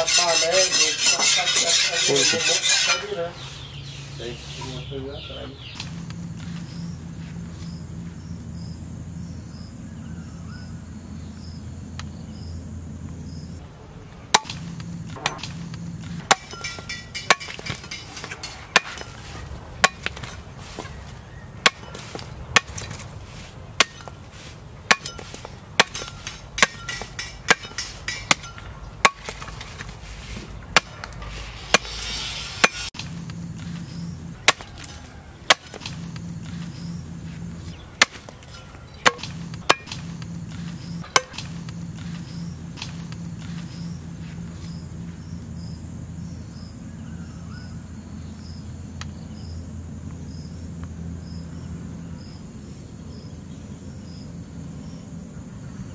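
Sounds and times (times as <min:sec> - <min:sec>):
steady low hum: 0:00.0 - 0:55.9
knife chopping sugarcane on wood: 0:14.4 - 0:43.9.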